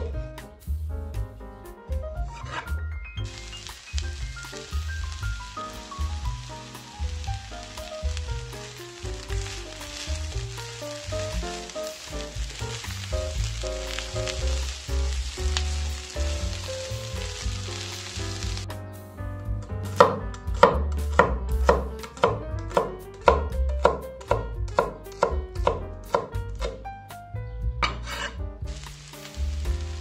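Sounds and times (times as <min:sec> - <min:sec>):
oil sizzling in a pan: 0:02.2 - 0:18.8, 0:27.8 - 0:30.0
blade scraping across board: 0:02.3 - 0:02.8, 0:27.8 - 0:28.4
cleaver chopping on wooden board: 0:20.0 - 0:26.8.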